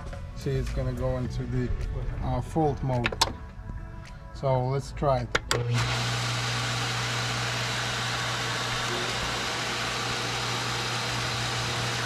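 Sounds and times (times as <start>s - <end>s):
pump motor humming: 5.5s - 12.0s.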